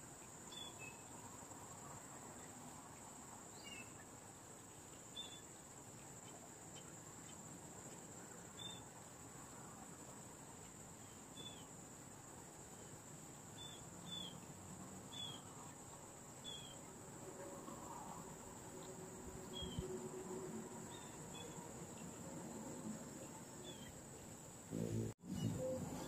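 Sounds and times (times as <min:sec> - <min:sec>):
insects trilling: 0:00.0 - 0:26.0
bird chirping: 0:00.2 - 0:01.3, 0:03.5 - 0:04.2, 0:04.9 - 0:07.6, 0:08.5 - 0:08.9, 0:10.6 - 0:11.8, 0:12.7 - 0:16.9, 0:18.8 - 0:20.0, 0:20.8 - 0:26.0.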